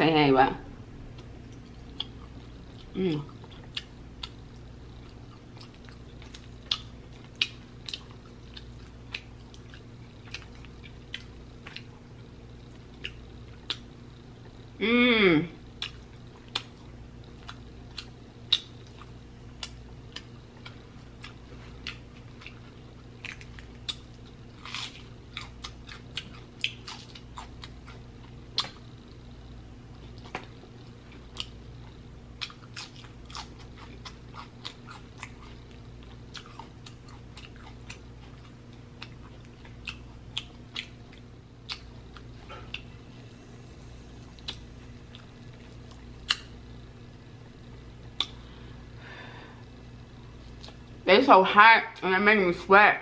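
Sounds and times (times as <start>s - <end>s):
person chewing: 1.1s - 13.9s, 15.7s - 29.0s, 29.9s - 43.0s, 44.2s - 46.6s, 48.1s - 48.5s, 50.4s - 51.0s
wet lip smacks and clicks: 28.5s - 28.8s, 39.8s - 41.9s, 44.4s - 45.3s, 45.9s - 46.5s, 48.1s - 48.4s.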